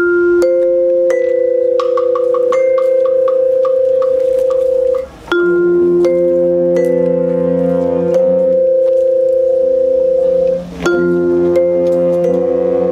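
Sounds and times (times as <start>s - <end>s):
mallet percussion notes: 0.0s - 12.9s
lower brass: 4.7s - 12.9s
band brass and winds chords: 6.4s - 9.0s.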